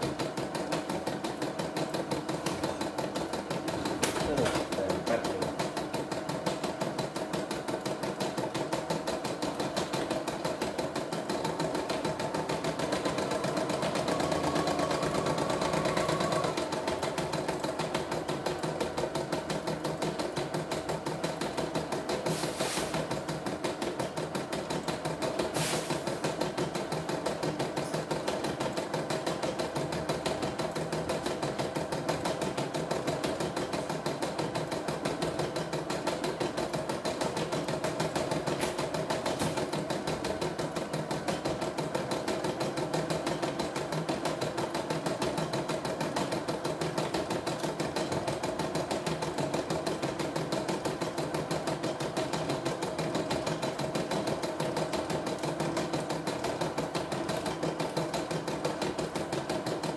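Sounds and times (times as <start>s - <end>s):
embroidery machine stitching: 0.0s - 59.9s
brief hisses: 25.6s - 26.0s.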